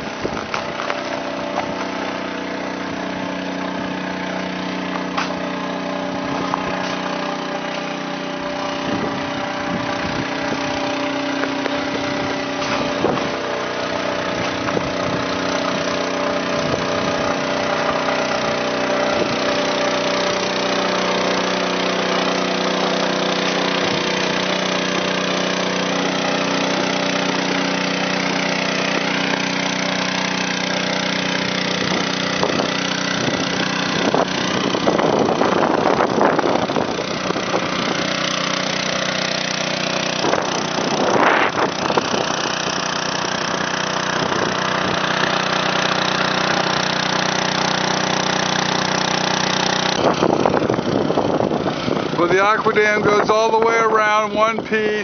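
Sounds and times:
gasoline water pump running: 0.0 - 55.0.

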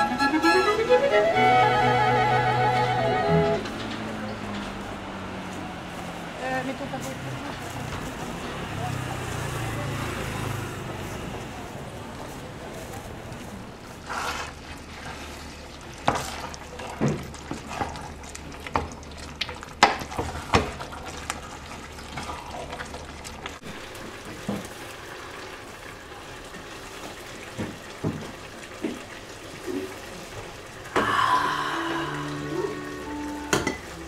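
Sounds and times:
soup simmering hiss: 13.4 - 19.5, 20.1 - 34.0
wooden spoon knocking on pot: 33.5 - 33.9.

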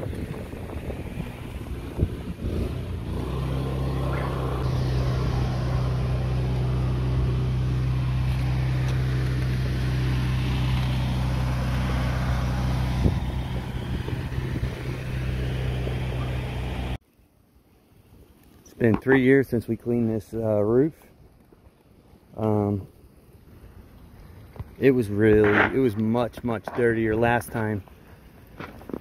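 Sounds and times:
small engine humming: 0.0 - 17.0.

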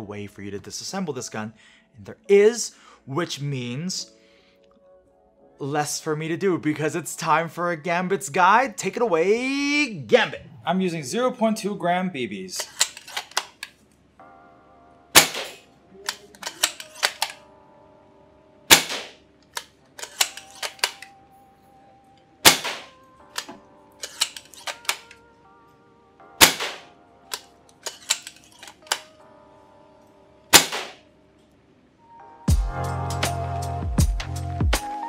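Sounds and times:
rifle bolt clicking: 12.6 - 13.7, 15.2 - 17.4, 18.7 - 21.1, 22.5 - 25.2, 26.4 - 29.1
airsoft rifle shots: 15.2 - 15.6, 18.7 - 19.2, 22.4 - 22.9, 26.4 - 26.9, 30.5 - 31.0.

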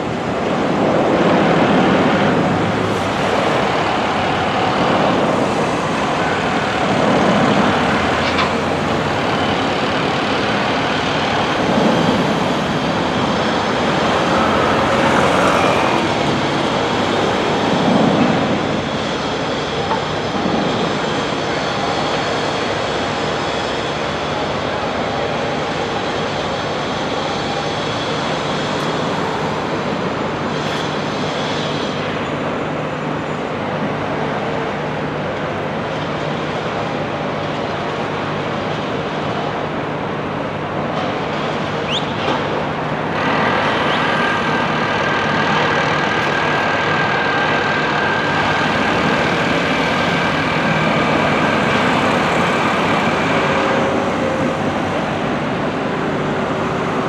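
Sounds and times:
construction site din: 0.0 - 57.0
traffic: 0.0 - 57.0
machine whine: 35.9 - 57.0.

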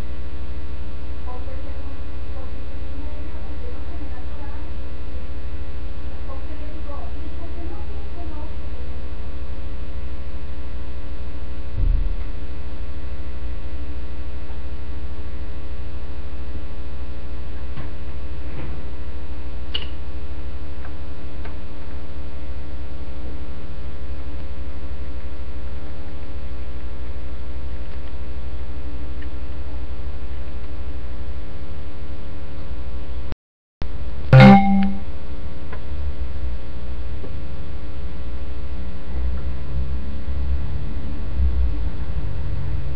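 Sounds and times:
electrical mains hum: 0.0 - 33.3
loud thump with buzz: 11.8 - 12.3.

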